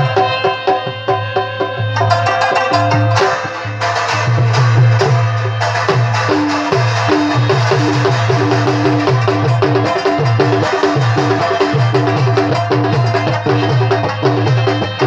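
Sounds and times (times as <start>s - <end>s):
percussive beat: 0.0s - 15.0s
plucked lute melody: 2.0s - 13.9s.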